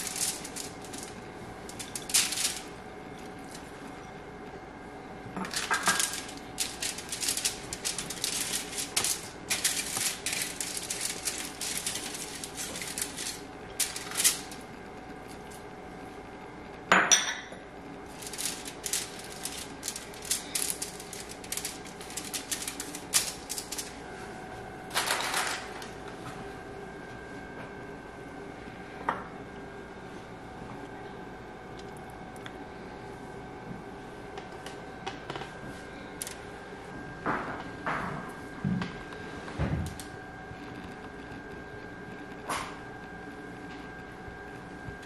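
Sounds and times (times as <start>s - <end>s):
aluminium foil crinkling: 0.0s - 3.8s, 5.4s - 15.7s, 18.0s - 24.2s, 24.9s - 26.0s.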